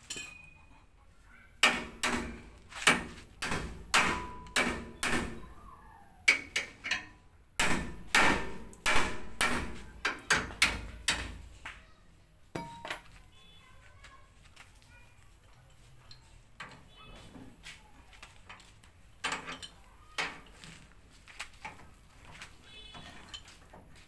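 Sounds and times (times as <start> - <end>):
hammer striking steel: 1.6 - 5.4, 6.3 - 11.4.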